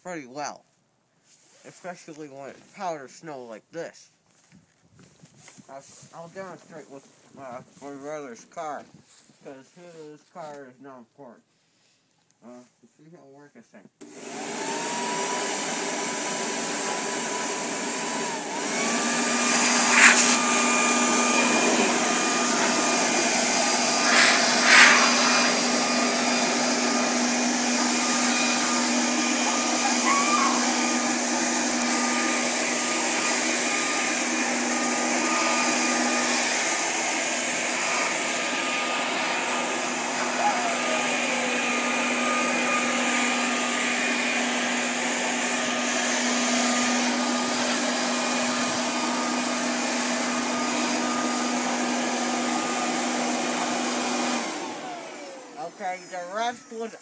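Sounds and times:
leaf blower whine: 0:14.0 - 0:57.0.

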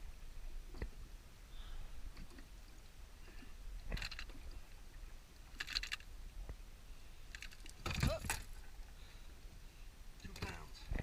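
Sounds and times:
small clicks and rattles: 0:03.9 - 0:04.5, 0:05.5 - 0:06.1, 0:07.3 - 0:08.6.

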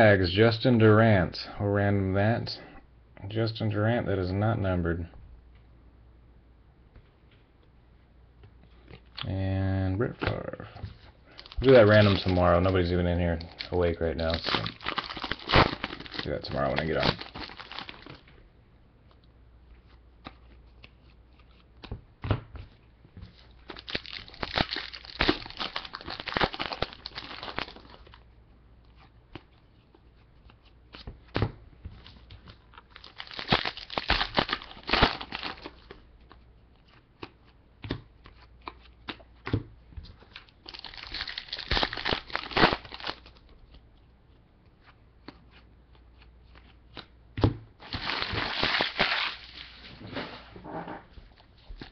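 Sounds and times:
foil wrappers crinkling and tearing: 0:11.3 - 0:18.2, 0:23.5 - 0:28.2, 0:32.8 - 0:36.0, 0:40.4 - 0:43.5, 0:47.8 - 0:50.0.

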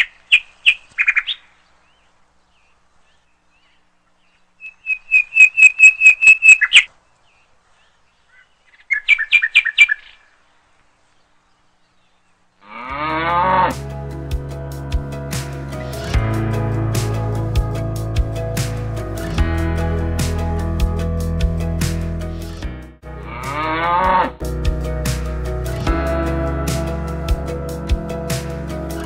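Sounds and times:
bird chirping: 0:00.0 - 0:12.6
cow mooing: 0:12.6 - 0:13.8, 0:23.2 - 0:24.4
music: 0:13.5 - 0:29.0.

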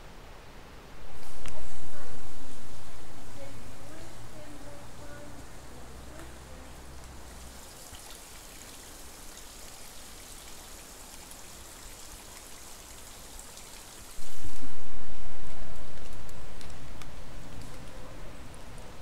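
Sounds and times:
water trickling on rock: 0:06.1 - 0:14.7.

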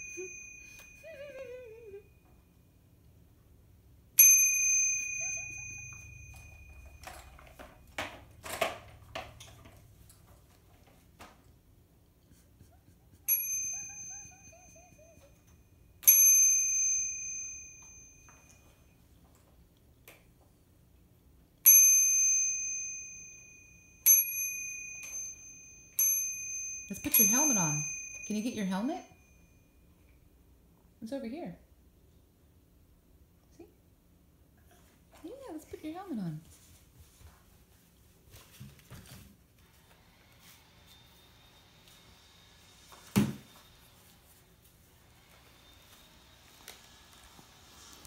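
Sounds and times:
scooter bell ringing: 0:00.0 - 0:02.3, 0:04.2 - 0:09.9, 0:13.2 - 0:19.0, 0:21.6 - 0:29.7.

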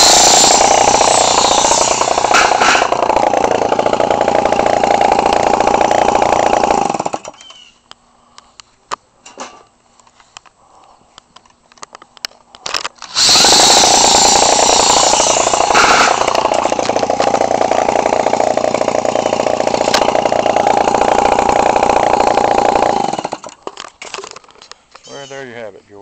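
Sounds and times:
two-stroke model plane engine running: 0:00.0 - 0:06.7, 0:13.1 - 0:23.5.

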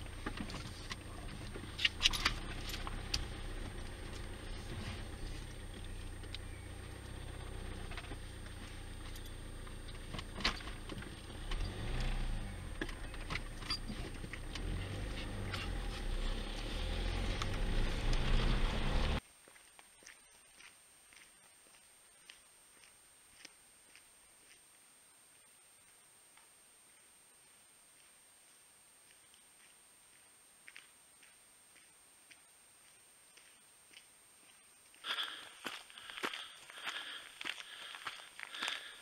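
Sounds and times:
car engine and tyre rumble: 0:00.0 - 0:19.2, 0:34.9 - 0:39.0.

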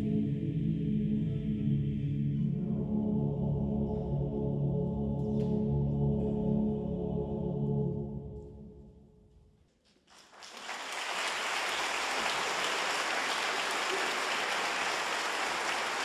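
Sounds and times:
choir final chord: 0:00.0 - 0:08.7
audience applause: 0:10.1 - 0:16.0.

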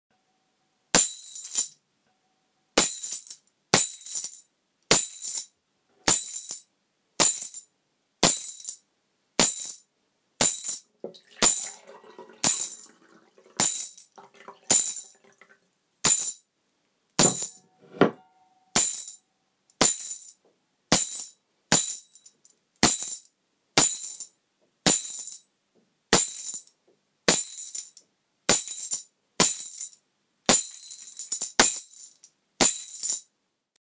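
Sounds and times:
tambourine jingle: 0:00.9 - 0:01.8, 0:02.8 - 0:08.8, 0:09.4 - 0:11.8, 0:12.4 - 0:12.9, 0:13.6 - 0:14.1, 0:14.7 - 0:15.2, 0:16.0 - 0:16.5, 0:17.2 - 0:17.6, 0:18.8 - 0:25.5, 0:26.1 - 0:33.3.

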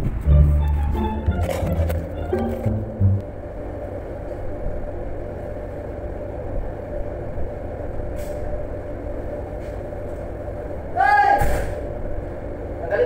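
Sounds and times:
ship machinery low rumble: 0:00.0 - 0:11.0.

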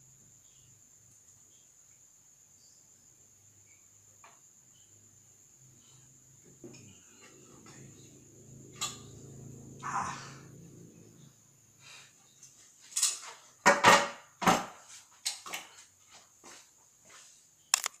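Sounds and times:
tools knocking on table: 0:13.7 - 0:14.8
camera handling bumps: 0:17.8 - 0:18.0.

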